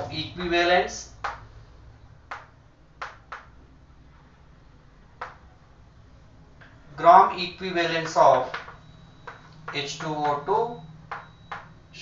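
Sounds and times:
faint low hum: 0.0s - 12.0s
chalk tapping on blackboard: 1.2s - 1.5s, 2.3s - 3.5s, 8.0s - 10.4s.

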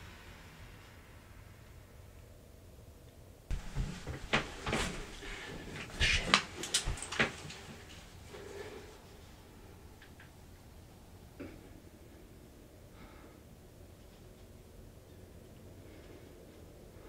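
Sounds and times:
rustling movement: 3.5s - 10.0s.

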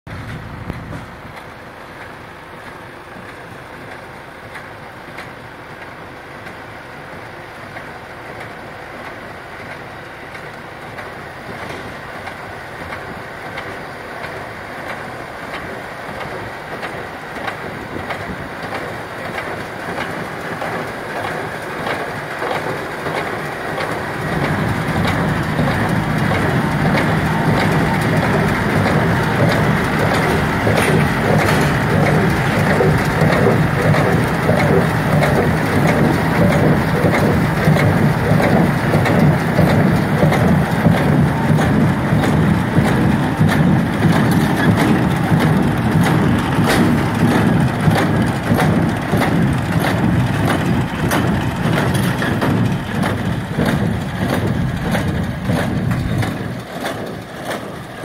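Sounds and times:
tractor engine: 0.1s - 58.0s
baler mechanical clatter: 7.7s - 58.0s.

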